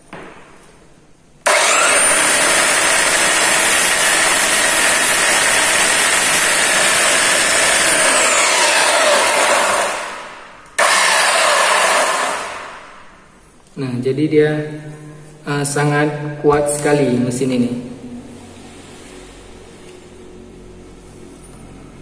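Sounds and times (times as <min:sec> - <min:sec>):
belt sander whining: 0:01.4 - 0:12.8.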